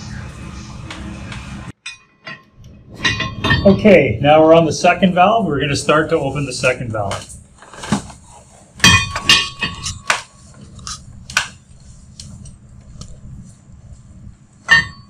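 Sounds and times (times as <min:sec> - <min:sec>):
wrench clanking on metal valve: 0:01.8 - 0:04.0.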